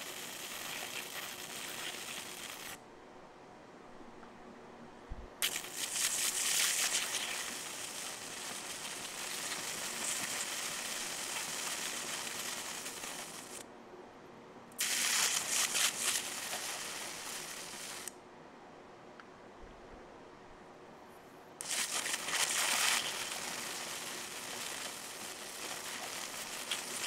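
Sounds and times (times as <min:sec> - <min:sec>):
electric arcs crackling and sizzling: 0:00.0 - 0:02.8, 0:05.4 - 0:13.6, 0:14.8 - 0:18.1, 0:21.6 - 0:27.0.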